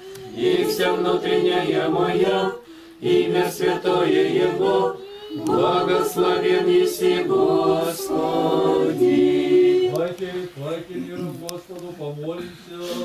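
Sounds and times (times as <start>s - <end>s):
voices singing a cappella chant: 0.0s - 13.0s.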